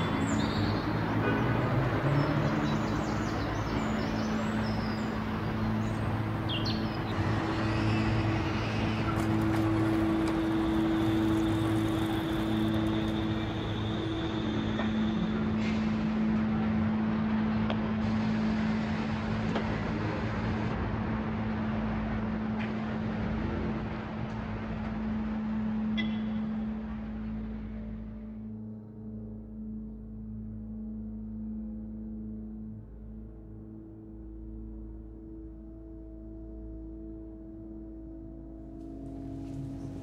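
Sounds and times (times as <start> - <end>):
traffic noise: 0.0 - 28.3, 38.8 - 40.0
low hum of held tones: 0.0 - 40.0.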